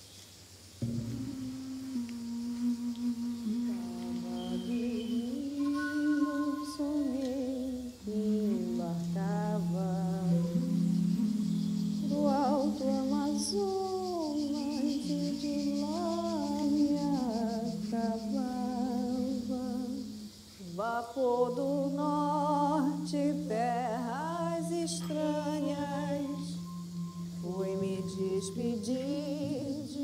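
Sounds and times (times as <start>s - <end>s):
low drone note: 0.8s - 13.6s, 21.9s - 29.7s
voice humming melody: 0.8s - 30.0s.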